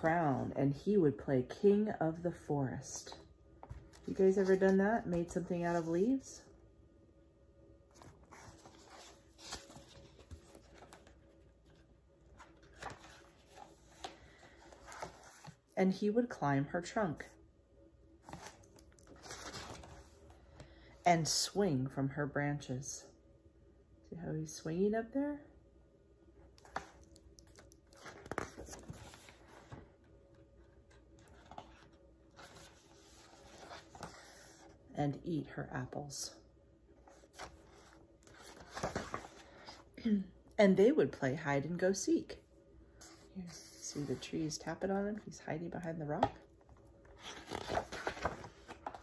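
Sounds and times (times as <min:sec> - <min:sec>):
book page rustling: 0:07.9 - 0:15.6, 0:18.2 - 0:20.3, 0:26.6 - 0:29.9, 0:30.9 - 0:34.8, 0:37.0 - 0:39.8, 0:46.2 - 0:49.0.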